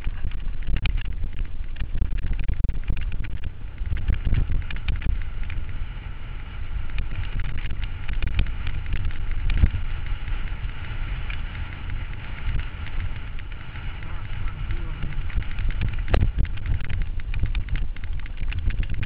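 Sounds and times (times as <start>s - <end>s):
bike rattling: 0.0s - 19.0s
mountain bike riding on rocky trail: 0.0s - 19.0s
wind on microphone: 0.0s - 19.0s
stones clicking and knocking: 6.8s - 19.0s.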